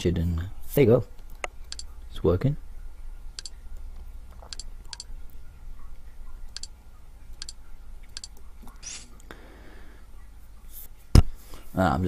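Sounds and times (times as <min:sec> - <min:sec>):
faint low hum: 0:00.0 - 0:12.0
computer mouse clicks: 0:01.3 - 0:01.9, 0:03.4 - 0:03.6, 0:04.3 - 0:05.1, 0:06.5 - 0:09.1.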